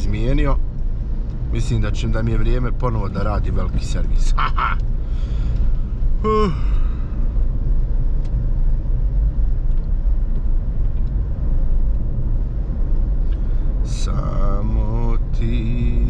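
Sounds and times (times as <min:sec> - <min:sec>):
car engine and tyre rumble: 0:00.0 - 0:16.0
short falling vocal sound: 0:06.2 - 0:06.8.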